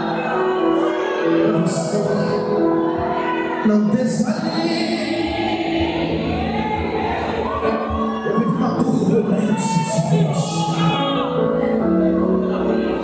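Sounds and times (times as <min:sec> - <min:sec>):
musical accompaniment: 0:00.0 - 0:13.0
man singing gospel: 0:01.4 - 0:02.6, 0:03.6 - 0:05.3, 0:08.3 - 0:11.6.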